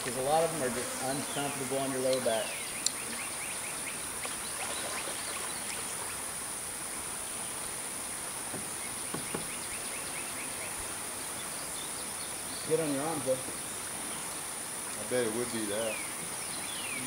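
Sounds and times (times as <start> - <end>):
insects buzzing: 0.0 - 17.0
river ambience: 0.0 - 17.0
light knocks: 8.5 - 9.6.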